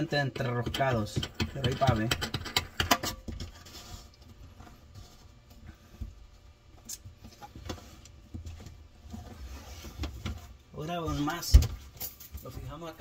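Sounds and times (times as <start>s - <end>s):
plastic nut clicking and scraping: 0.4s - 4.2s.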